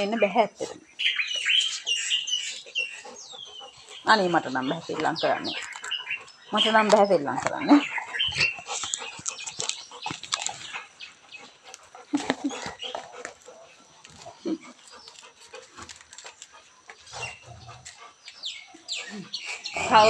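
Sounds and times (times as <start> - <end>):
dogs chewing coconut husk: 0.2 - 20.0
dog growling: 19.0 - 20.0.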